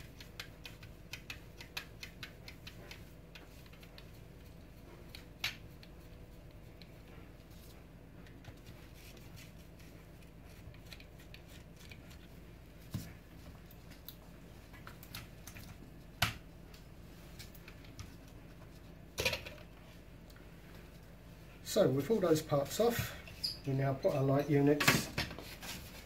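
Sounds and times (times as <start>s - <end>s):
small clicks and taps: 0.0s - 4.1s.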